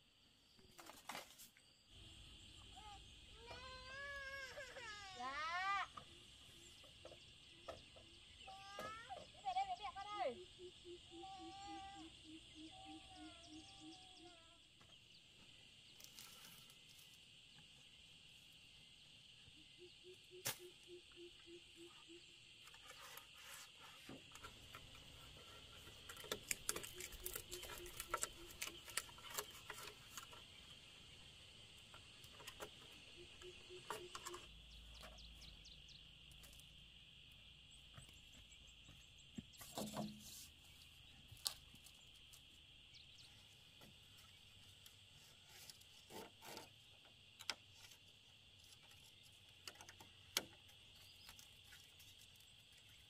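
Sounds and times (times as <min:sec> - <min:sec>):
bamboo poles clicking and knocking: 0:20.4 - 0:20.7, 0:24.0 - 0:30.5, 0:31.9 - 0:35.4, 0:39.4 - 0:40.5, 0:44.8 - 0:48.0, 0:48.6 - 0:53.0.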